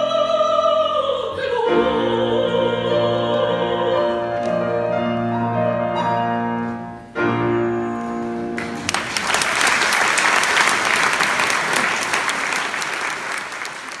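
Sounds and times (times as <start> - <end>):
audience applause: 8.6 - 14.0.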